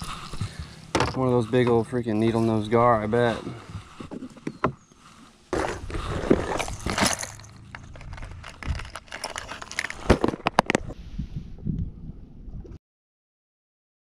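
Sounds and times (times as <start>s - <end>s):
lures clattering in plastic tray: 5.6s - 10.9s.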